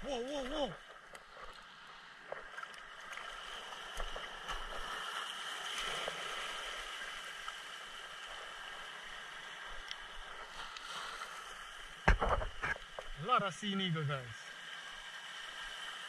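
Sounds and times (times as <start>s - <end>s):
faint clicks and splashes: 9.7s - 11.0s.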